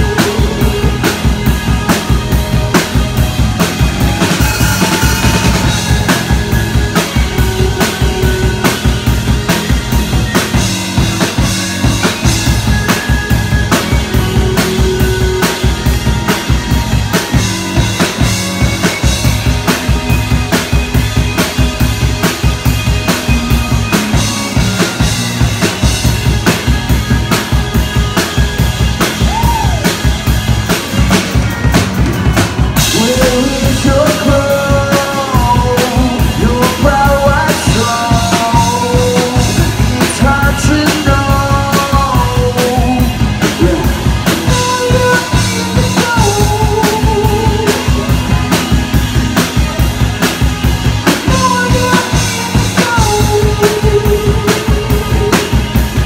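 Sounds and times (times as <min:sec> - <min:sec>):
drum kit beat: 0:00.0 - 0:56.0
live rock band playing: 0:00.0 - 0:56.0
wavering melody line: 0:00.1 - 0:17.7.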